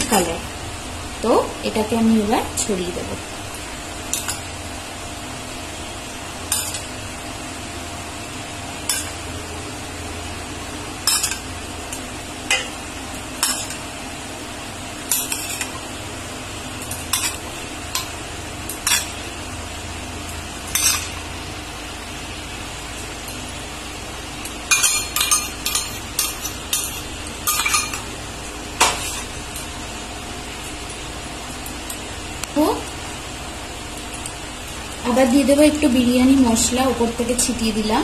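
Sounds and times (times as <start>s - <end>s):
steady low hum: 0.0s - 38.0s
spoon clinking against steel bowl: 24.7s - 28.0s.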